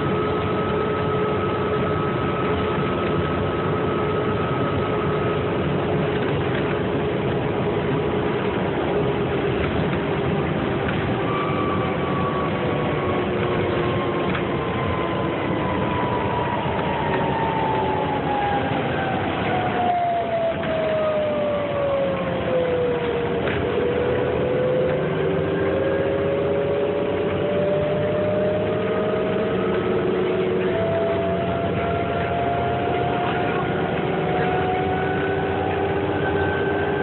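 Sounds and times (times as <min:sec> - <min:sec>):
bus engine running: 0:00.0 - 0:37.0
road and tyre noise: 0:00.0 - 0:37.0.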